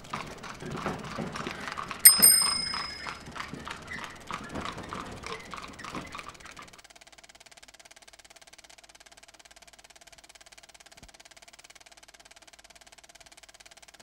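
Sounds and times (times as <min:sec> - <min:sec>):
wheels knocking: 0:00.0 - 0:06.7
horse hooves clip-clopping: 0:00.1 - 0:06.3
bicycle bell ringing: 0:02.0 - 0:03.2.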